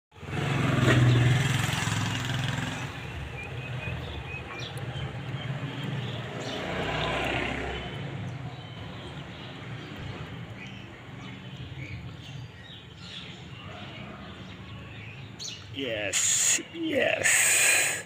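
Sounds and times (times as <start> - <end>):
vehicle engine passing: 0.2 - 8.5.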